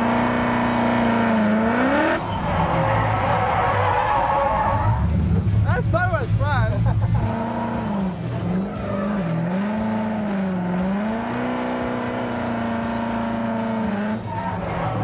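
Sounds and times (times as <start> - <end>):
car engine revving hard: 0.0 - 3.9, 7.0 - 15.0
tyres squealing: 1.7 - 5.1.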